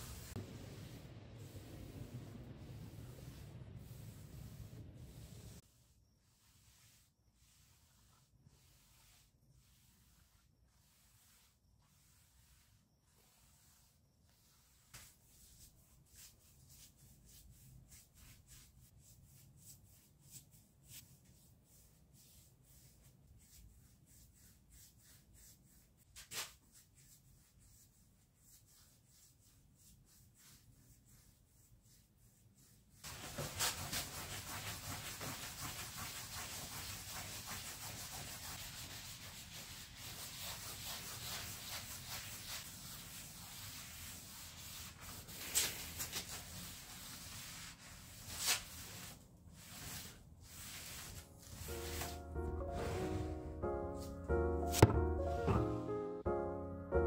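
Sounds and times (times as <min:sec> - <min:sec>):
brush strokes: 0:00.0 - 0:56.2
sharp tap: 0:54.7 - 0:55.6.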